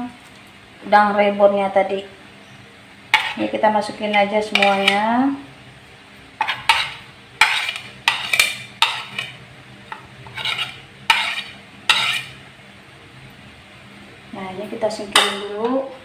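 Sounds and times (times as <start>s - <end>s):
spoon scraping plastic plate: 4.6s - 5.0s, 6.4s - 12.4s.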